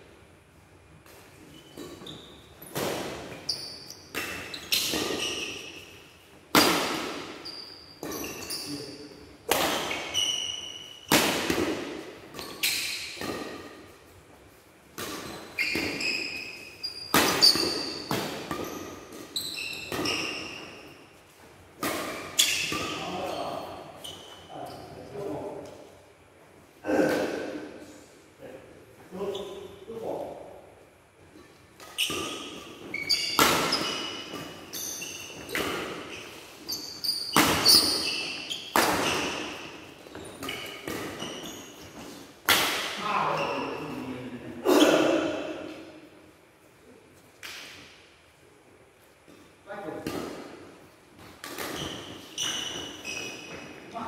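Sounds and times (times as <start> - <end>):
court shoes squeaking: 0.8 - 26.0, 29.1 - 30.2, 31.1 - 46.3, 48.8 - 54.0
rackets striking shuttlecock: 9.4 - 13.9, 16.9 - 21.0, 31.8 - 43.0, 51.2 - 53.5.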